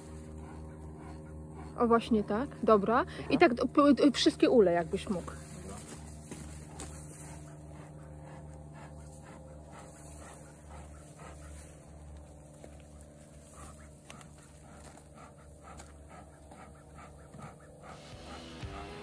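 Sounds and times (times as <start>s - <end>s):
steady low hum: 0.0s - 19.0s
bellows puffing air: 13.4s - 19.0s.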